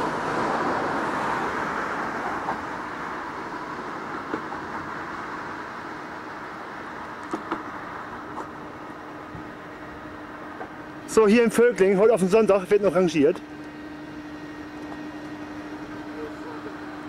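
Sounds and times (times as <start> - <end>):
train rolling over tracks: 0.0 - 6.2.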